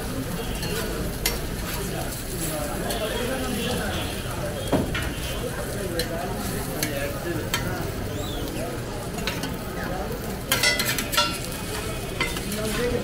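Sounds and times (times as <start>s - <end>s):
food sizzling on griddle: 0.0s - 13.0s
metal spatula scraping and clacking: 0.5s - 1.8s, 10.5s - 11.6s, 12.2s - 13.0s.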